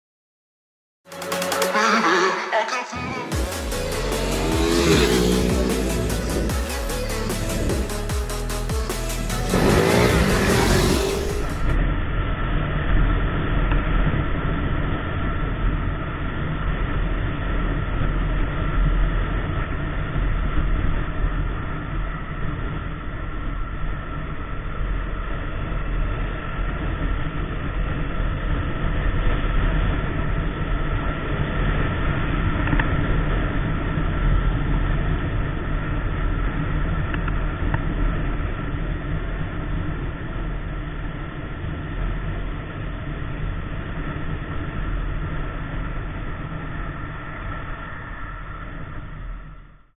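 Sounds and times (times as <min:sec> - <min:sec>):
motorcycle engine cruising: 0:03.3 - 0:11.8
wind rush on microphone: 0:11.7 - 0:49.7.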